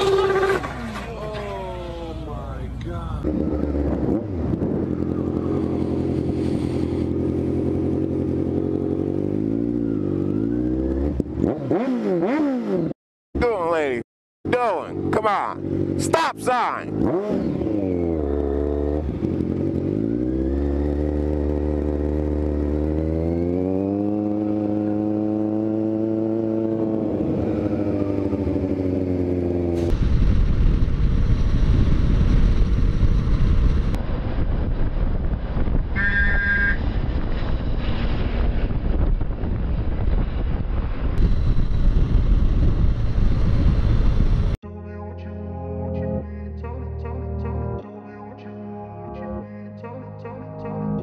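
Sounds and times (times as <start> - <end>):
motorcycle running at speed: 0.0 - 1.1, 3.2 - 12.9, 14.5 - 44.6
motorcycle engine accelerating: 0.0 - 1.2, 3.1 - 13.0, 16.9 - 44.6
wind rushing over microphone: 3.2 - 7.4, 29.9 - 44.6
brief high tone: 36.0 - 36.8.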